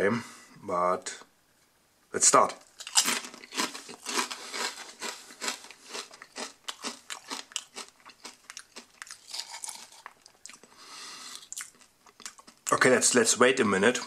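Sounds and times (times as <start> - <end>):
person chewing crisp chips: 2.5 - 12.8.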